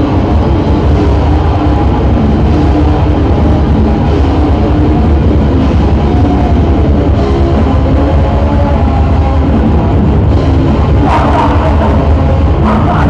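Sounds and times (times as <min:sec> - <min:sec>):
metal band playing live: 0:00.0 - 0:13.0.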